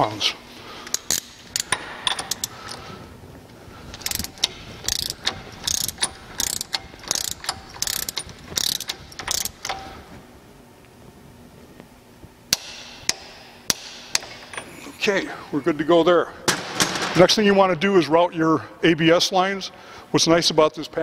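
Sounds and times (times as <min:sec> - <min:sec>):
torque wrench ratchet clicks: 0:00.9 - 0:02.8, 0:04.0 - 0:09.8.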